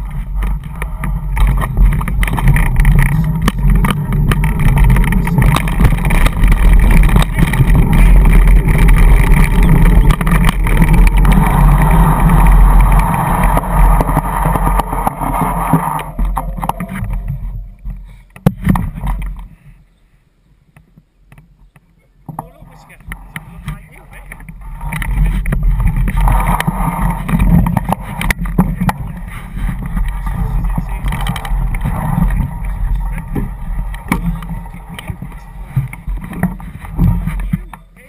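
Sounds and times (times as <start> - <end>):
scooter wheels rumbling on tarmac: 0.0 - 19.7, 22.2 - 38.0
wind buffeting microphone: 22.9 - 37.6.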